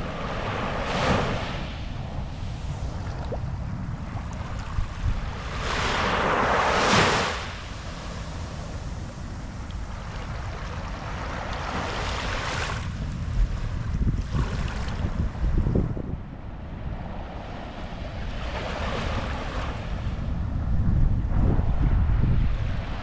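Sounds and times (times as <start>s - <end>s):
waves washing onto sand: 0.0s - 15.6s.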